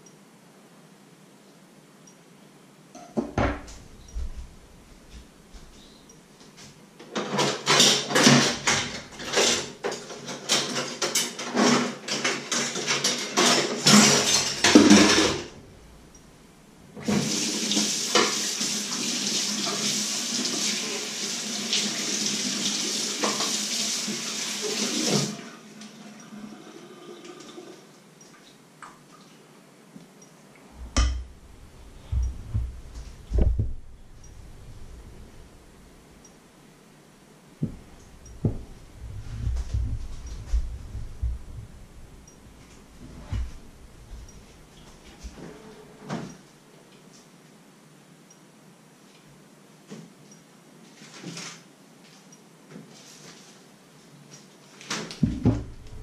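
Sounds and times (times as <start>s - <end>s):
low thuds: 3.4s - 5.7s, 30.7s - 36.2s, 37.6s - 44.7s, 55.2s - 56.0s
dishes clattering in sink: 7.1s - 15.5s, 30.9s - 31.3s
tap running: 30.8s - 35.8s, 37.6s - 44.6s.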